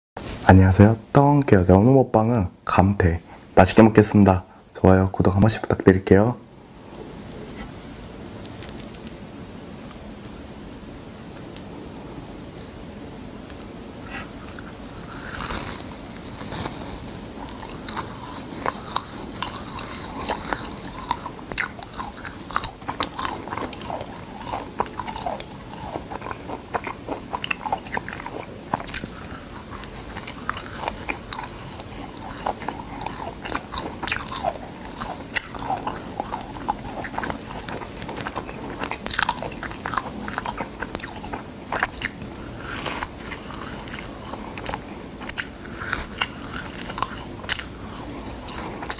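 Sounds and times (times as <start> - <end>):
chewing: 13.5 - 48.9
dried seaweed crackling and tearing: 14.5 - 48.9.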